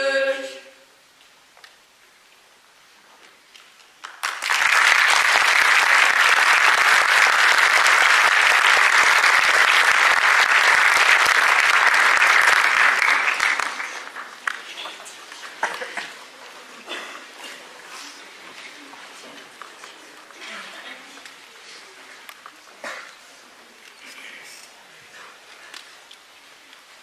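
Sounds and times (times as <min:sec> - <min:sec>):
audience applause: 0:04.0 - 0:16.4.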